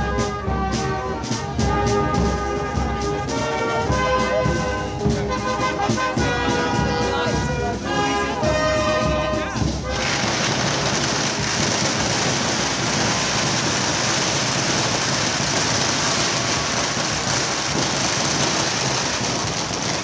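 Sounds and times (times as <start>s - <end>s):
dense hiss with crackles: 9.9s - 20.0s.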